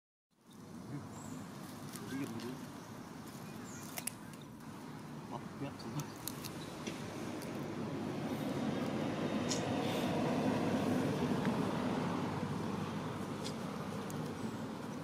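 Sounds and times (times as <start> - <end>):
vehicle passing rumble: 4.6 - 15.0.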